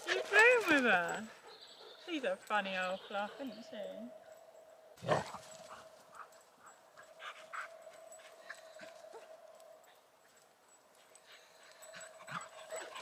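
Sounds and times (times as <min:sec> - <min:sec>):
dogs moving: 0:00.0 - 0:03.4.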